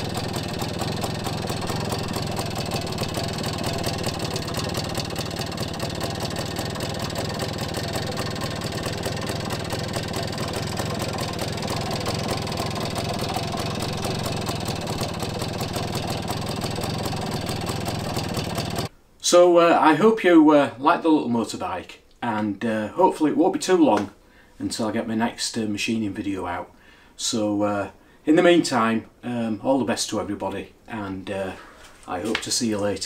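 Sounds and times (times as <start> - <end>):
two-stroke engine idling: 0.0 - 18.9.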